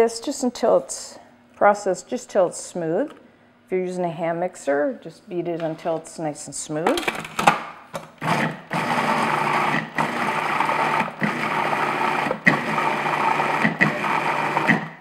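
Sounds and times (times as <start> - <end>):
food processor motor running: 8.2 - 15.0.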